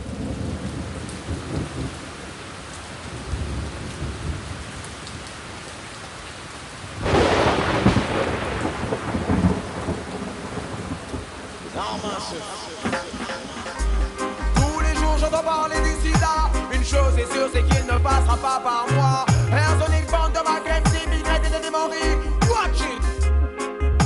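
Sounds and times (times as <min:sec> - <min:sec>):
loud thunderclap: 0:00.0 - 0:02.0, 0:07.0 - 0:13.9
thunder rumbling: 0:00.0 - 0:02.4, 0:03.1 - 0:04.9, 0:06.9 - 0:15.3
steady rain: 0:00.0 - 0:23.2.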